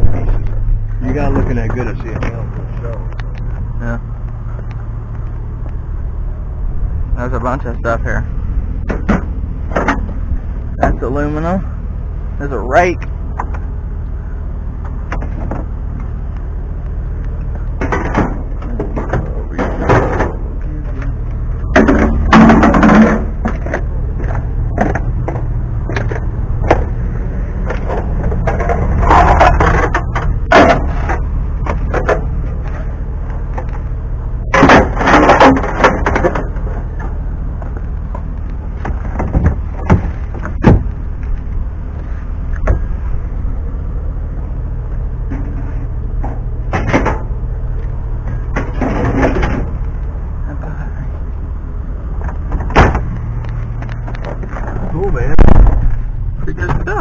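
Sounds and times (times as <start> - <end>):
steady low rumble: 0.0 - 57.0
scrap metal clattering and scraping: 17.6 - 33.8, 34.4 - 37.2, 48.2 - 49.9.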